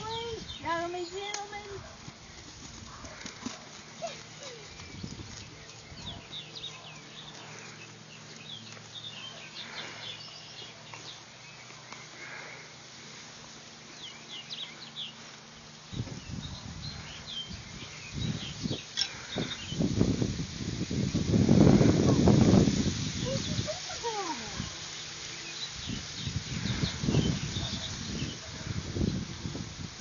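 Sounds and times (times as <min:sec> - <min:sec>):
small birds chirping: 0:00.0 - 0:29.9.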